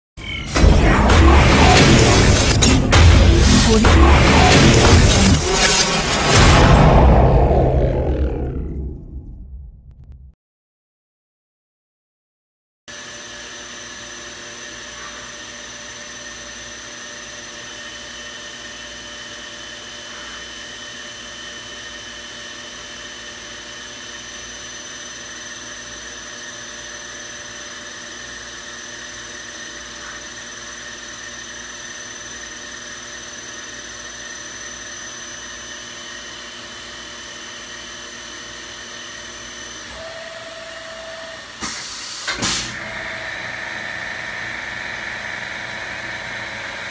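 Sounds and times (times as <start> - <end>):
machining center whirring hum: 0.2 - 9.2, 12.9 - 46.9
high steady machine whines: 0.2 - 9.7, 12.9 - 46.9
lower machine tone: 0.2 - 10.4, 39.7 - 41.6.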